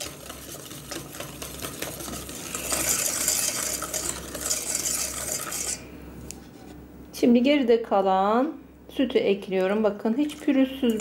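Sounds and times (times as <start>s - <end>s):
wire whisk scraping metal pot: 0.0s - 5.9s.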